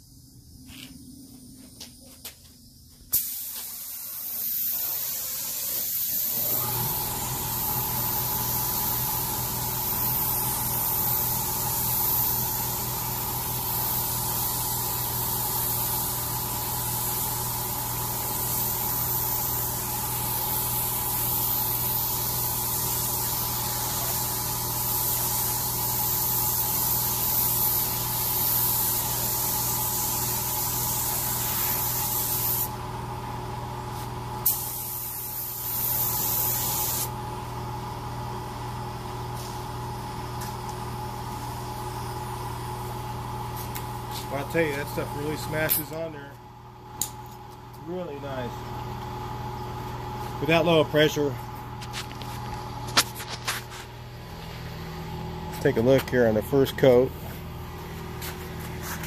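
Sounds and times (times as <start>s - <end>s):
steady machine hum: 0.0s - 59.0s
spray gun hissing: 3.0s - 32.7s, 34.4s - 37.1s.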